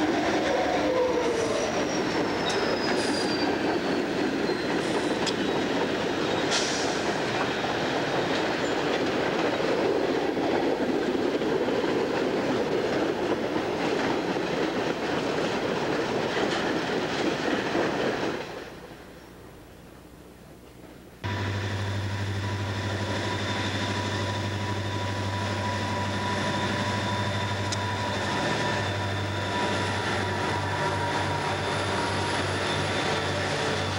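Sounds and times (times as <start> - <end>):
freight train rumbling past: 0.0 - 19.6, 21.2 - 33.9
high wheel squeal: 0.8 - 7.0, 22.4 - 33.9.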